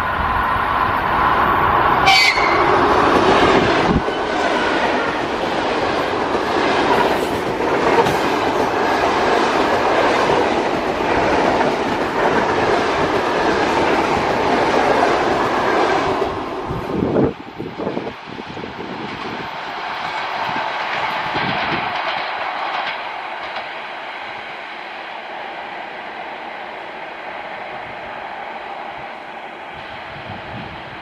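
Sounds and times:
train wheels rumbling on rails: 0.0 - 31.0
clickety-clack over rail joints: 2.0 - 24.5.

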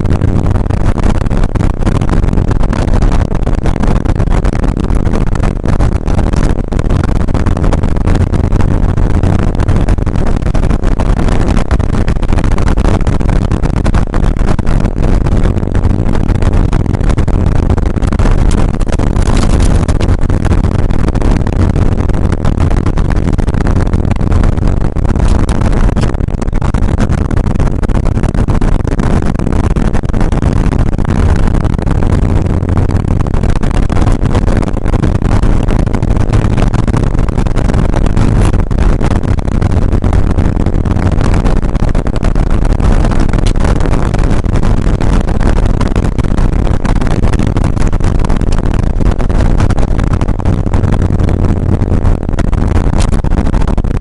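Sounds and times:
car engine running inside cabin: 0.0 - 54.0.

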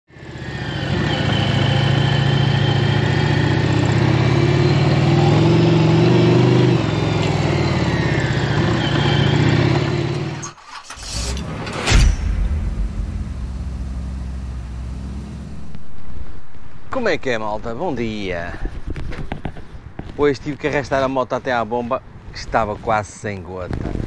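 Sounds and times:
motorcycle engine running: 0.9 - 10.3
short whoosh: 11.1 - 18.9
heavy low hit: 11.5 - 17.8.

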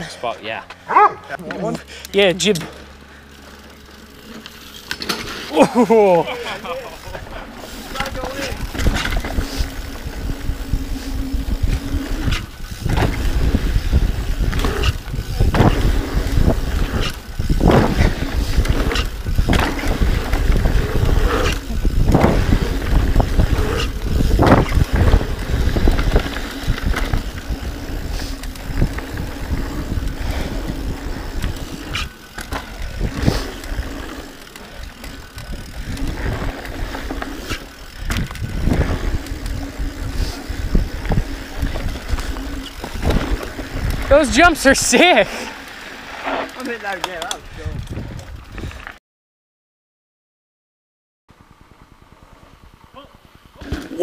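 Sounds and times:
low buzz: 0.0 - 44.8
tyres rolling over dirt: 0.0 - 48.9, 53.2 - 54.0
bike knocks and rattles: 2.3 - 5.5, 6.3 - 44.2
wind buffeting microphone: 8.1 - 34.0, 35.2 - 44.4, 47.5 - 48.8.

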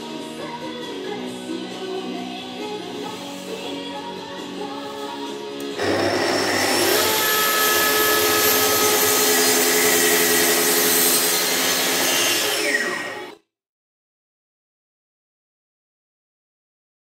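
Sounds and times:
track saw cutting wood: 5.8 - 13.4.

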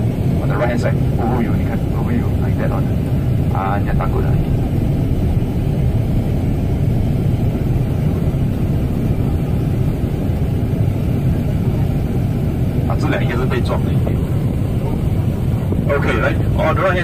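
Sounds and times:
road noise inside car: 0.0 - 17.0
vehicle engine rumble: 0.0 - 17.0.

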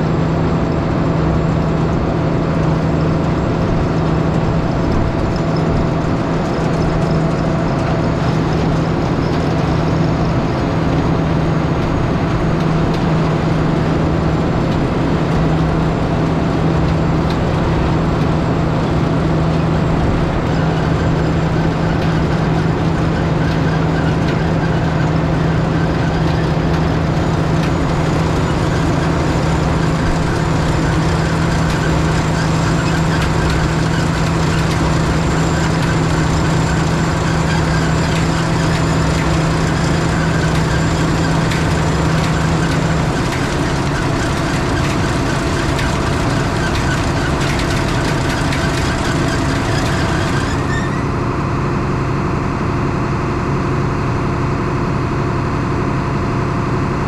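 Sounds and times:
tractor engine running: 0.0 - 57.0.

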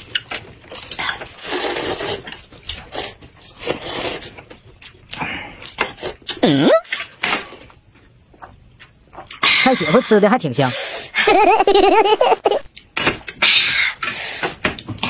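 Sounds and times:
noodle slurping and chewing: 0.0 - 7.2.

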